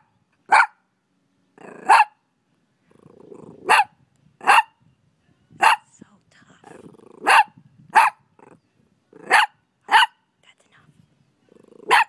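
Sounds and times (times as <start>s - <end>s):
puppy barking: 0.0s - 0.8s, 1.6s - 2.2s, 3.6s - 4.7s, 5.6s - 5.8s, 7.2s - 8.2s, 9.2s - 10.2s, 11.8s - 12.0s
puppy growling: 1.6s - 2.0s, 2.8s - 3.9s, 6.6s - 7.5s, 8.3s - 9.5s, 11.5s - 12.0s.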